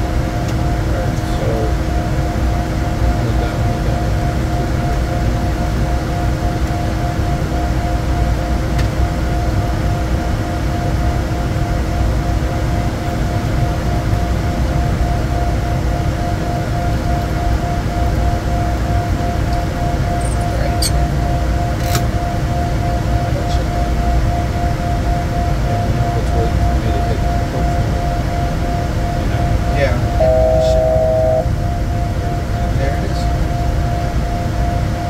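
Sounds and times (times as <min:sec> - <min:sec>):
thin steady tones: 0:30.2 - 0:31.6
pulsing tone: 0:30.2 - 0:31.8.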